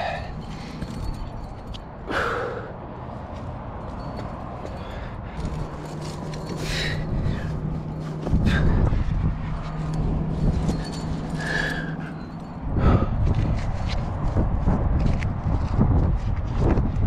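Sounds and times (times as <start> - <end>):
person breathing hard: 0.0 - 1.2, 2.0 - 2.9, 4.6 - 9.6, 10.9 - 13.5.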